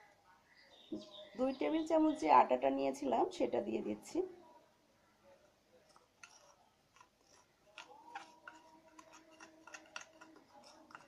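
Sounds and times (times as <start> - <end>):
spoon scraping bowl: 5.9 - 11.0.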